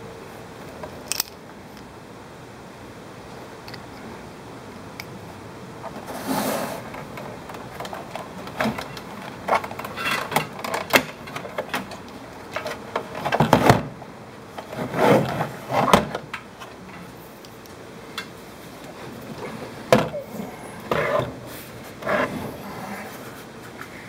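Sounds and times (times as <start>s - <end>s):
plastic parts clicking and knocking: 0.8s - 1.9s, 6.9s - 13.9s.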